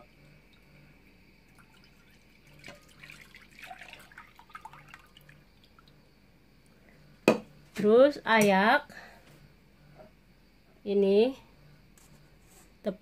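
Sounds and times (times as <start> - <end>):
milk dripping into a bowl: 1.4 - 6.1.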